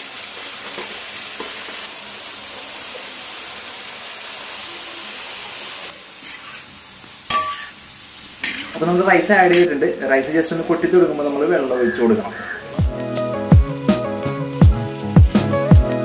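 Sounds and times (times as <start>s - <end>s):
spices sizzling in a metal pot: 0.0s - 16.0s.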